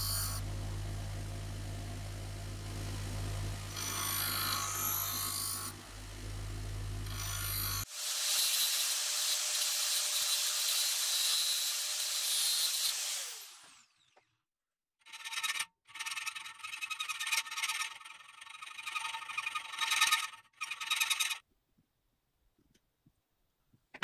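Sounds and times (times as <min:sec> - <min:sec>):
high-speed power tool running: 0:00.0 - 0:14.2
hand file rasping on metal: 0:03.6 - 0:05.8, 0:07.0 - 0:13.2.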